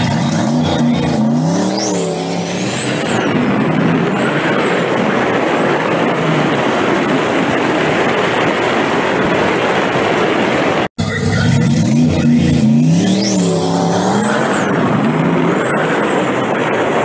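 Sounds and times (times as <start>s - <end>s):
wind and road noise: 0.0s - 17.0s
wind blowing across microphone: 2.6s - 10.9s.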